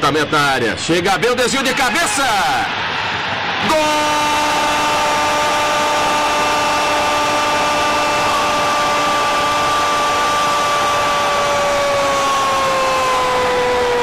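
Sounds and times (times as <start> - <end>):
stadium crowd noise: 0.0 - 11.1
commentator shouting goal: 0.2 - 2.7, 3.6 - 4.8.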